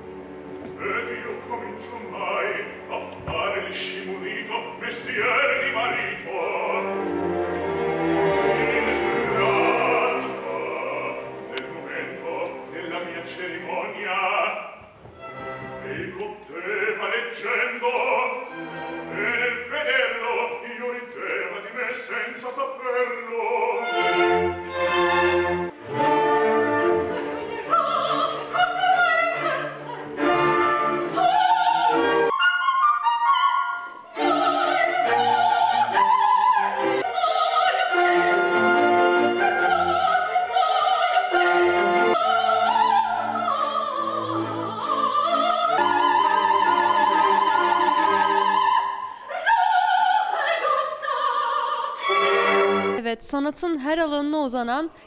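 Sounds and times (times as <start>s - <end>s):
symphony orchestra: 0.0s - 53.0s
male operatic singing: 0.7s - 7.1s, 8.3s - 14.8s, 15.8s - 24.3s.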